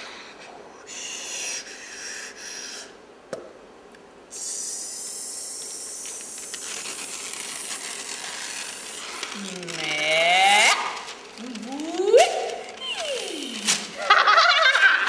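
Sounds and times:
breathy hissing bursts: 0.0 - 3.0, 4.3 - 9.7
steady high hiss: 0.0 - 15.0.

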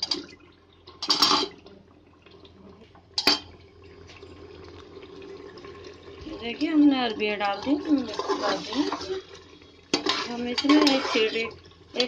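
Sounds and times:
stirring in gravy: 6.2 - 12.0
metal spatula clinking on pot: 9.9 - 11.3.

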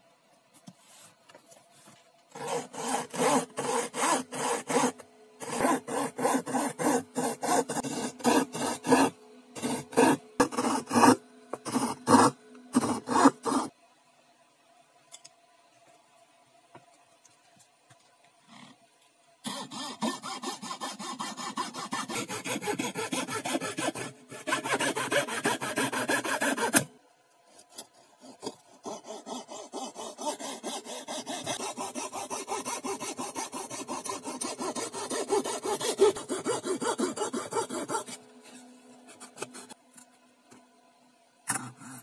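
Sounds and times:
faint steady hum: 0.0 - 42.0
hand saw cutting plywood: 2.3 - 13.7, 19.4 - 26.9, 27.7 - 38.2.

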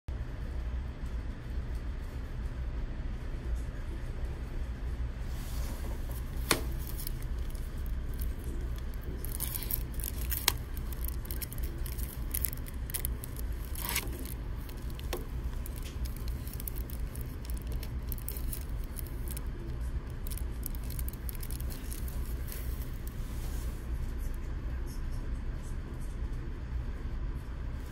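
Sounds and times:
steady low hum: 0.1 - 27.9
cellophane crinkling: 5.6 - 23.8.

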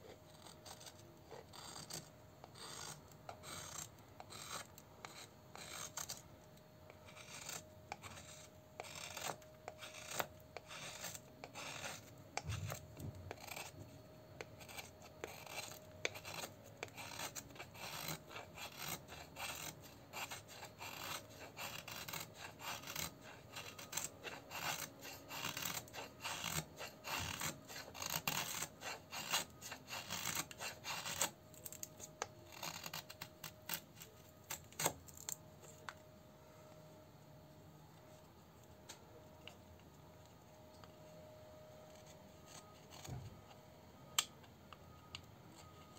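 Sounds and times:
knife shaving wooden stick: 0.0 - 36.0, 41.7 - 43.3, 44.1 - 45.9.

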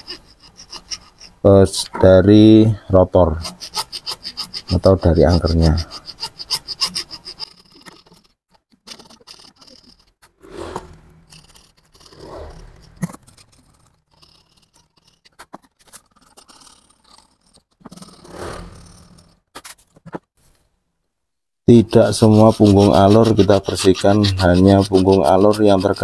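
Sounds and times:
metal housing scraping on wooden bench: 3.2 - 15.4, 17.4 - 19.4, 21.9 - 26.0.

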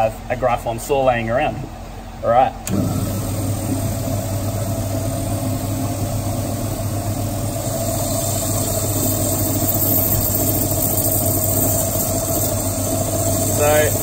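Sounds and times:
bandsaw cutting coral: 7.7 - 14.0.

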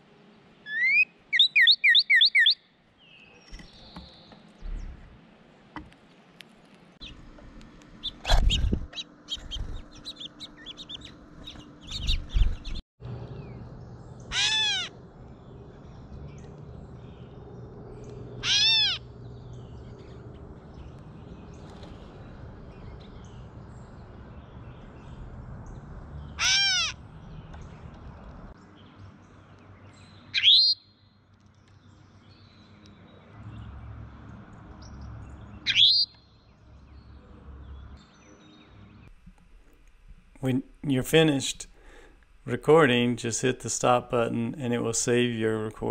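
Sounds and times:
wild birds calling: 0.6 - 5.8, 7.0 - 39.2, 40.5 - 42.5
high bird chirps: 0.7 - 5.0, 8.0 - 21.9, 30.0 - 31.1, 35.6 - 37.2.

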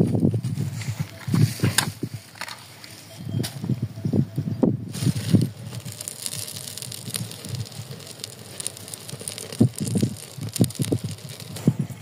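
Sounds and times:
dry sticks rustling: 4.9 - 11.8
plastic bags crinkling: 5.0 - 11.8.

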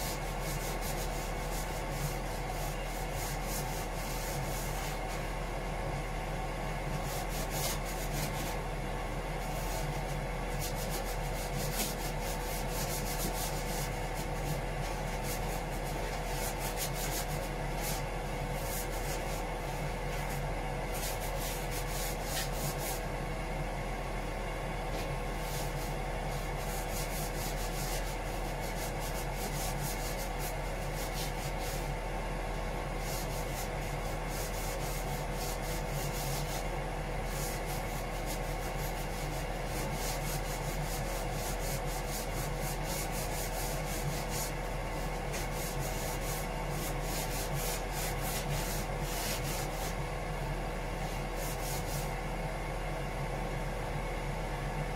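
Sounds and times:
sandpaper rubbing by hand: 0.0 - 5.1, 7.0 - 8.6, 9.5 - 19.4, 20.2 - 23.0, 25.0 - 31.9, 33.0 - 36.7, 37.3 - 50.0, 51.0 - 52.1
steady machinery hum: 0.0 - 54.9.

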